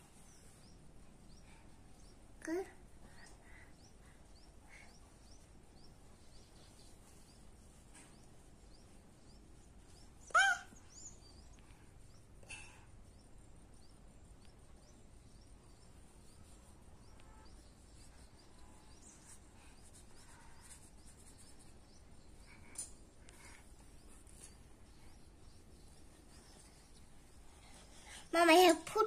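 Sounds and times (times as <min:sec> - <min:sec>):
faint high chirping: 0:00.0 - 0:29.0.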